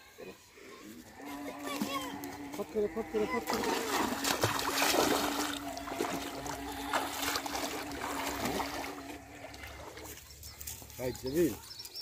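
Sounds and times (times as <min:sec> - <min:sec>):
water splashing around legs: 0:03.3 - 0:11.0.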